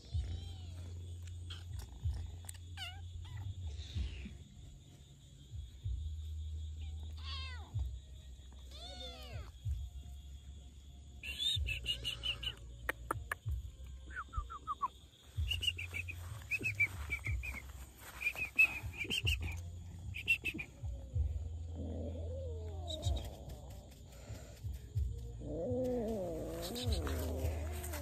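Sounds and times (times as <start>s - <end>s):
kittens meowing: 0.0s - 2.2s, 2.8s - 4.2s, 6.9s - 7.8s, 8.7s - 9.6s, 25.4s - 28.0s
high repeated chirping: 11.2s - 20.9s.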